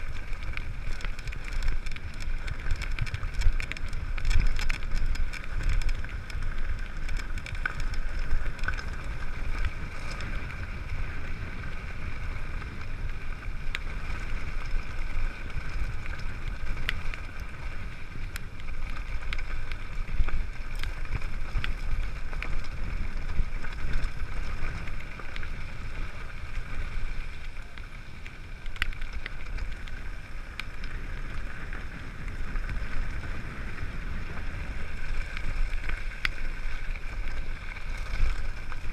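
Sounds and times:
bike clicks and rattles: 0:00.0 - 0:38.9
tyres running over gravel: 0:00.0 - 0:38.9
wind noise on microphone: 0:00.0 - 0:38.9.

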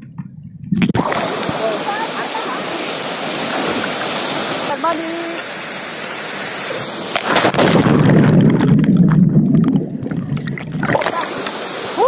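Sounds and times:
water splashing: 0:00.0 - 0:12.0
waterfall rushing: 0:01.0 - 0:08.1, 0:10.8 - 0:12.0.

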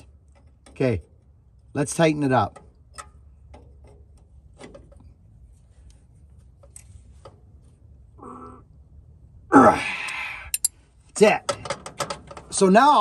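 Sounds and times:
wrench clicking: 0:10.5 - 0:10.8.

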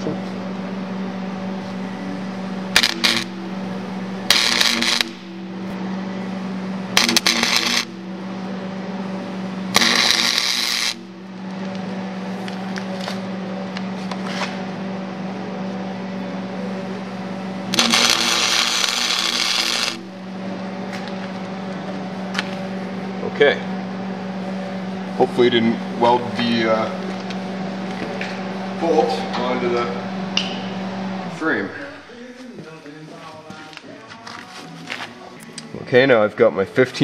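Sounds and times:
steady hum: 0:00.0 - 0:37.0
welding arc crackling: 0:01.4 - 0:05.3, 0:06.9 - 0:08.0, 0:09.7 - 0:11.7, 0:17.6 - 0:20.2.

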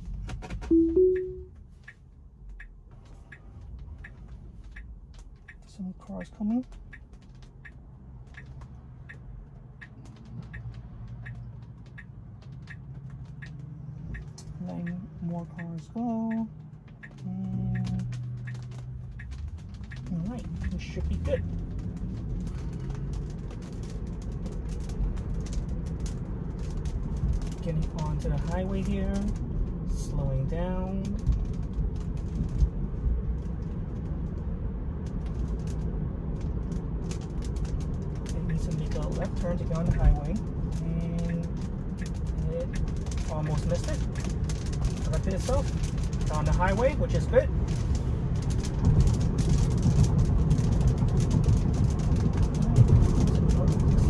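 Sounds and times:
turn signal ticking: 0:00.0 - 0:54.0
low cabin rumble: 0:14.0 - 0:54.0
raindrops tapping on glass: 0:37.1 - 0:54.0.

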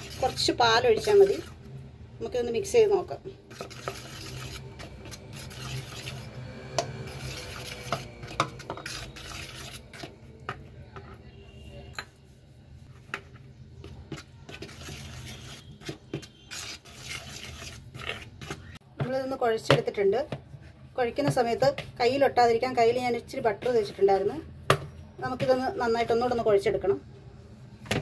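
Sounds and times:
spoon scraping in bowl: 0:00.0 - 0:01.7, 0:03.5 - 0:10.3, 0:11.5 - 0:18.8.

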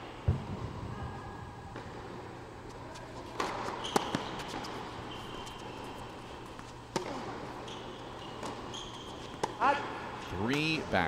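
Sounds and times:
tennis shoes squeaking: 0:02.9 - 0:10.8
tennis ball hits: 0:03.4 - 0:04.8, 0:06.9 - 0:07.6.

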